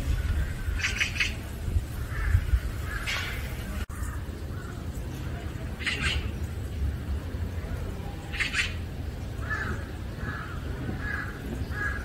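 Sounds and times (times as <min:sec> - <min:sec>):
raspy animal calls: 0:00.6 - 0:01.4, 0:05.8 - 0:06.4, 0:08.3 - 0:12.0.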